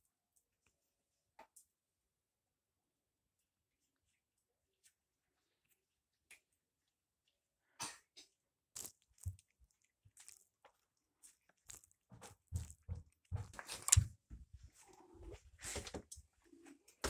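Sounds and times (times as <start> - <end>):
cat crunching dry kibble: 8.8 - 14.0.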